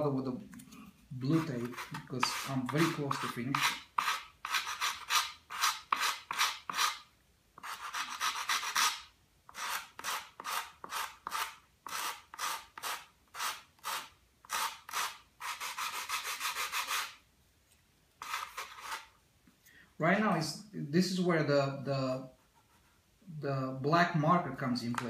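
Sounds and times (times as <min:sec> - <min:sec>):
sandpaper scraping on wood: 0:01.3 - 0:07.0, 0:07.6 - 0:17.2, 0:18.2 - 0:19.1.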